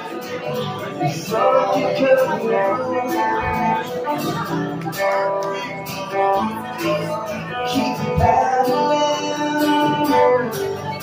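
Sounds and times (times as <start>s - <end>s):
acoustic guitar strumming: 0.0s - 11.0s
electric guitar through amplifier: 0.0s - 11.0s.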